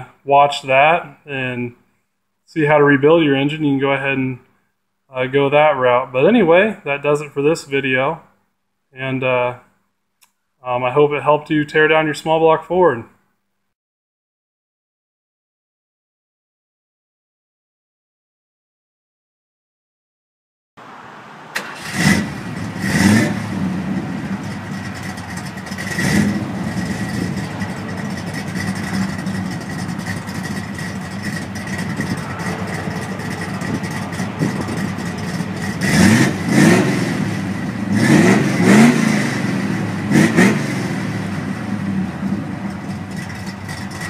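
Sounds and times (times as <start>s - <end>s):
car engine idling and revving: 20.8s - 44.0s.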